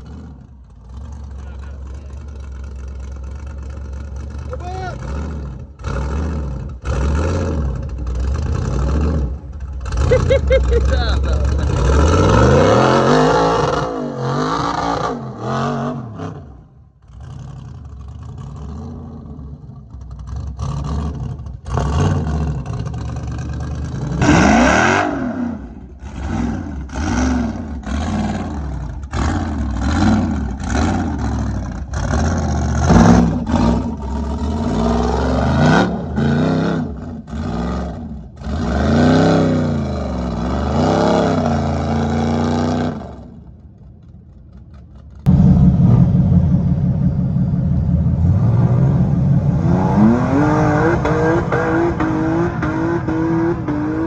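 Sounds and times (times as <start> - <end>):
buggy engine revving: 0.0 - 54.0.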